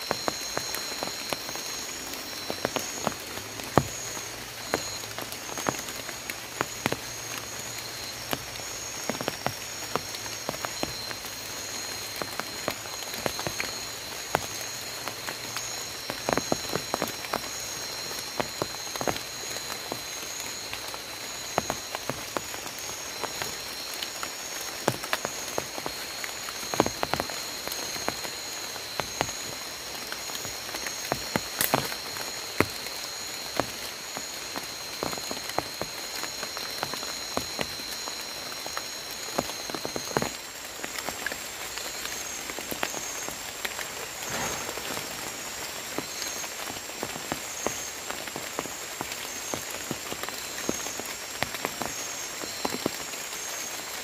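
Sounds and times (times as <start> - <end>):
frog chorus: 0.0 - 54.0
raindrops ticking on leaves: 0.0 - 54.0.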